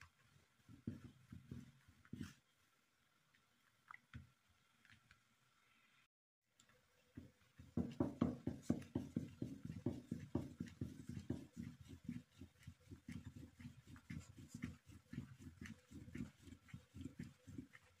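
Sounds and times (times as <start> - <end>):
rolling pin knocking on dough: 0.7 - 2.4, 7.2 - 18.0.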